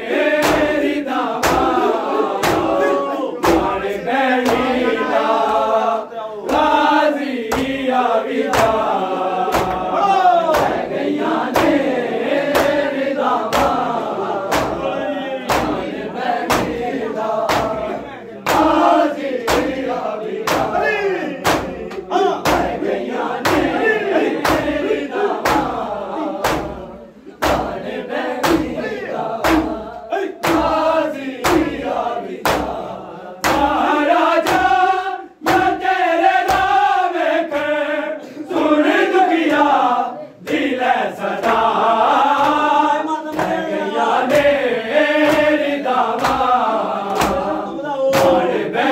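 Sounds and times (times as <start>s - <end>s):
men chanting in unison: 0.0s - 48.9s
hands slapping bare chests: 0.3s - 2.8s, 6.5s - 14.9s, 15.5s - 20.8s, 21.4s - 23.8s, 24.4s - 26.8s, 27.4s - 28.8s, 29.4s - 36.9s, 42.3s - 42.7s, 44.2s - 48.5s.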